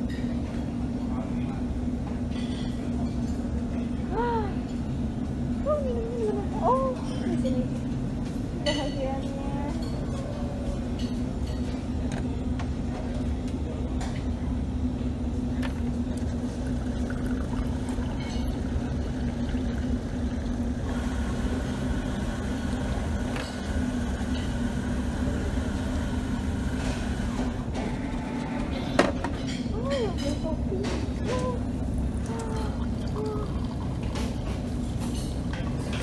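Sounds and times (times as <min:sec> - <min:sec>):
steady low hum: 0:00.0 - 0:36.0
water pouring into a glass: 0:16.5 - 0:20.5.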